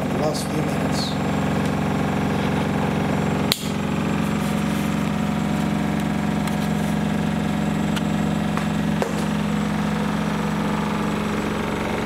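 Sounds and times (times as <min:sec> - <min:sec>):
washing machine spinning: 0:00.0 - 0:12.0
sharp click: 0:03.5 - 0:03.8.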